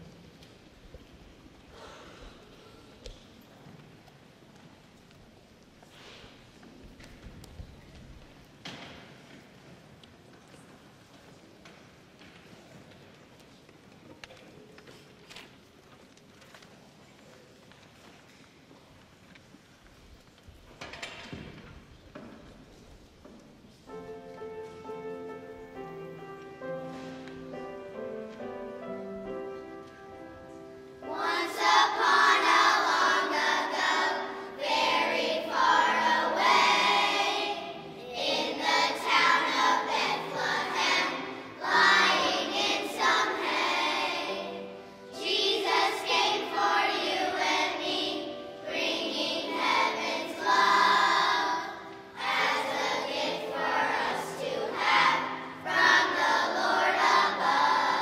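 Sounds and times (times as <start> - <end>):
piano accompaniment: 23.7 - 58.0
children's choir singing: 23.9 - 58.0.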